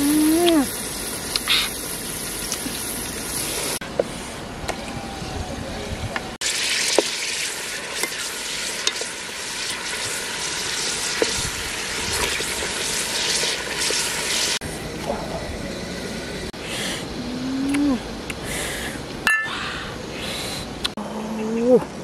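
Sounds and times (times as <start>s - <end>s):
steaming pot hissing: 0.0s - 3.8s, 6.4s - 17.3s
ladle clinking against pot: 19.3s - 19.5s.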